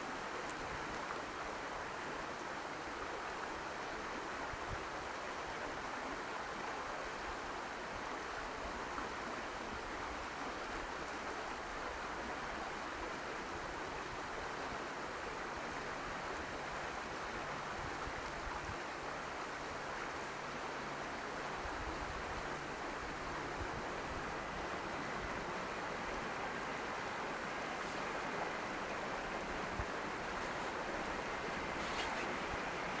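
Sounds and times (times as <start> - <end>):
rain falling: 22.7 - 33.0.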